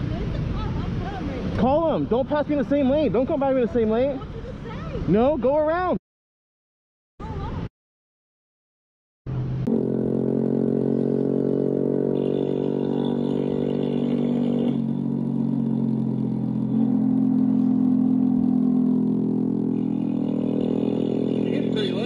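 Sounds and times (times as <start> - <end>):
motorcycle engine cruising: 9.3 - 22.0.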